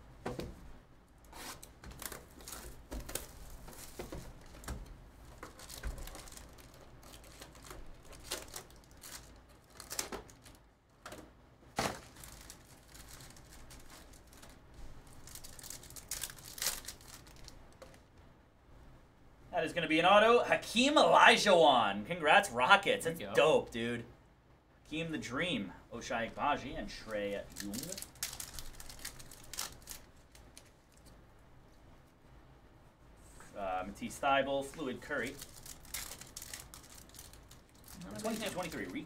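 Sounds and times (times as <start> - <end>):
foil wrappers crinkling and tearing: 1.4 - 10.6, 11.7 - 18.0, 27.2 - 31.1, 34.8 - 39.0.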